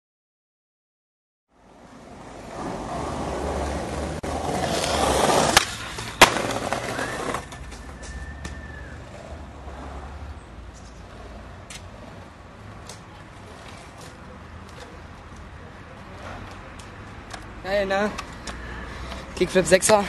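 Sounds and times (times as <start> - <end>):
skateboard wheels rolling on paving: 1.6 - 20.0
skateboard landing slap: 4.6 - 7.5
skateboard tail pop: 4.7 - 8.6.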